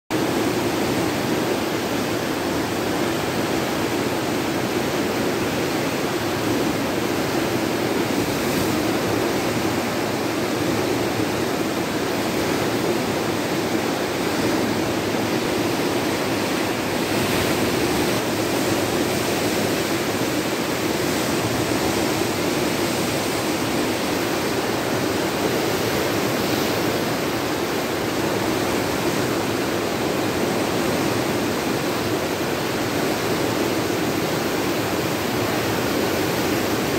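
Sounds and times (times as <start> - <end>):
river rushing through rapids: 0.1 - 36.9.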